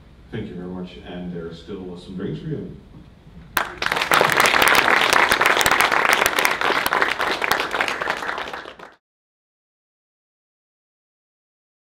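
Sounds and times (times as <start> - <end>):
audience applauding: 3.6 - 9.0.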